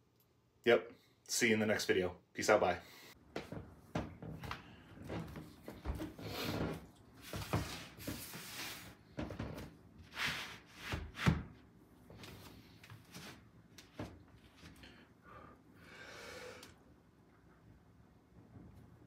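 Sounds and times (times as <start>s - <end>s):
rubbing and brushing: 6.2s - 9.0s.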